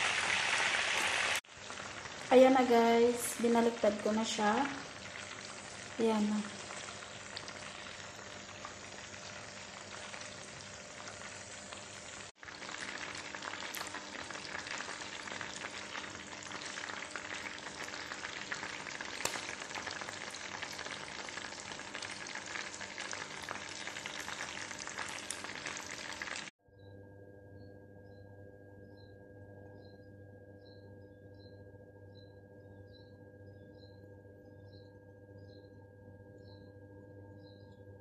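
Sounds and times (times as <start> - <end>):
oil sizzling around frying chicken: 0.0 - 26.5.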